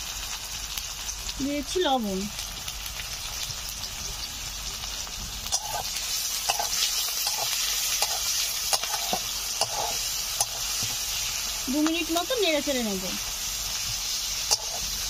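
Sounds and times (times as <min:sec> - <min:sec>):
onions sizzling in oil: 0:00.0 - 0:15.0
spatula scraping pan: 0:05.5 - 0:11.4, 0:13.8 - 0:15.0.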